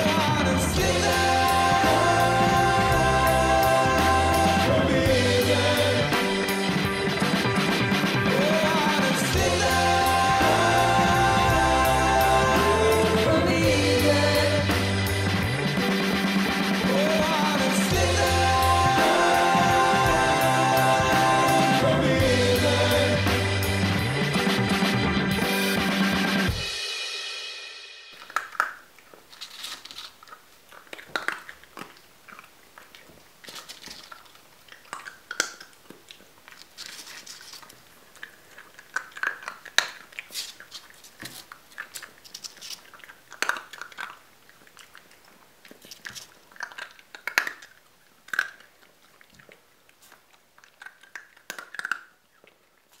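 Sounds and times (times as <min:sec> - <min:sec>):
music: 0:00.0 - 0:28.2
dry kibble crunching: 0:28.2 - 0:53.0.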